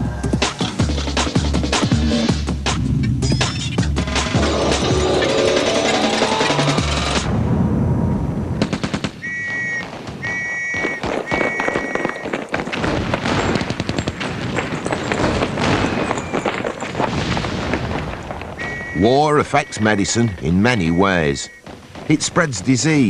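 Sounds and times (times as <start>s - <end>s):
rapid machine-gun fire: 8.6s - 18.8s.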